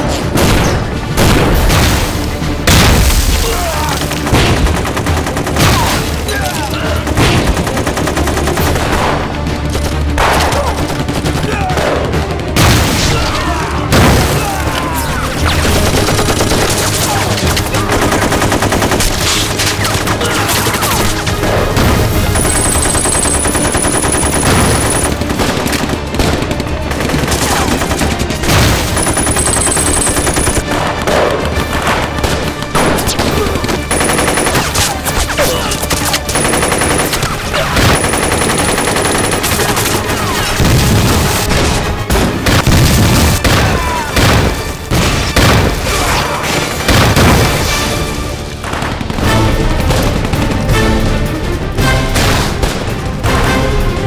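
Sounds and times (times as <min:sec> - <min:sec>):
rifle and machine-gun fire: 0:00.3 - 0:14.8, 0:15.4 - 0:51.0.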